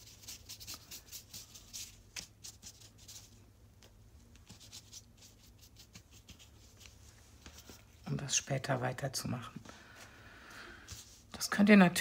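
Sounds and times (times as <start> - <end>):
paintbrush brushing over paper: 0.0 - 3.4, 4.4 - 8.1, 10.9 - 11.4.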